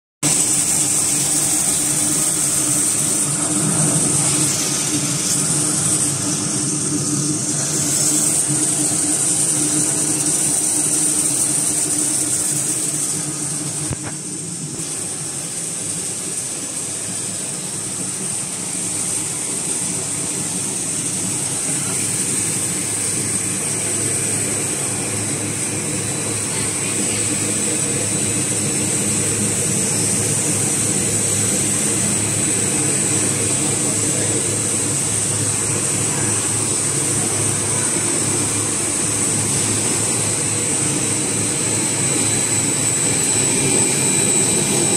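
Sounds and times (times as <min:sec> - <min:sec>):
high-pitched machine whine: 0:00.2 - 0:44.9
electric motors humming: 0:00.3 - 0:16.4.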